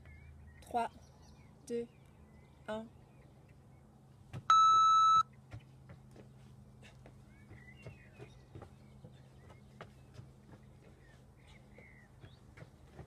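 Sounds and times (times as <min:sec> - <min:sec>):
electronic timer beep: 0:04.5 - 0:05.3
footfalls on wooden decking: 0:05.5 - 0:13.0.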